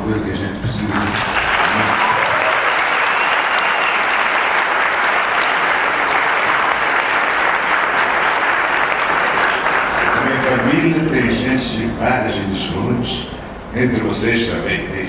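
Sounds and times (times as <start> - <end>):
audience applauding: 0.8 - 11.1.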